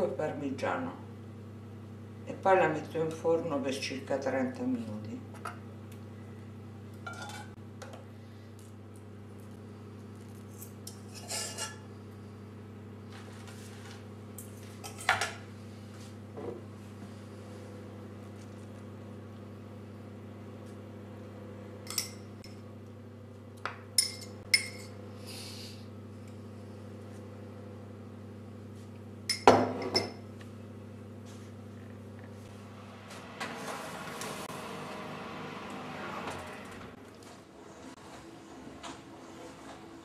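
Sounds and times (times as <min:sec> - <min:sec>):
steady low hum: 0:00.0 - 0:40.0
spoon scraping a cooking pot: 0:11.0 - 0:11.8.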